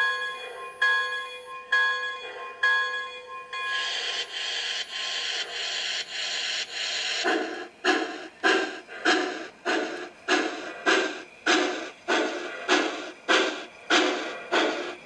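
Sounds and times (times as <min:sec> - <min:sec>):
locomotive bell ringing: 0:00.0 - 0:04.3
steam locomotive chuffing: 0:03.6 - 0:15.0.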